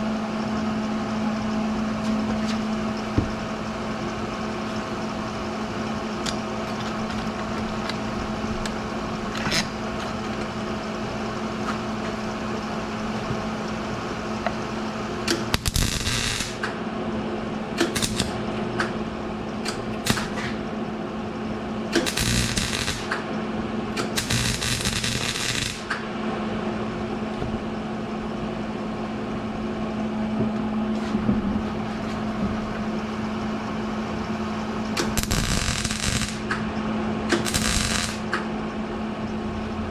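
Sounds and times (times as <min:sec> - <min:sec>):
low electrical hum: 0:00.0 - 0:39.9
electric welding arc hissing: 0:15.3 - 0:16.7, 0:17.8 - 0:18.4, 0:19.7 - 0:20.6, 0:21.9 - 0:23.2, 0:24.0 - 0:25.9, 0:35.0 - 0:36.6, 0:37.3 - 0:38.4.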